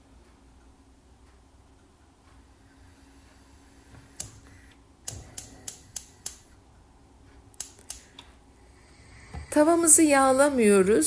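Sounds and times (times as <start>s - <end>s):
sharp clicks: 4.2s - 6.5s, 7.5s - 8.3s.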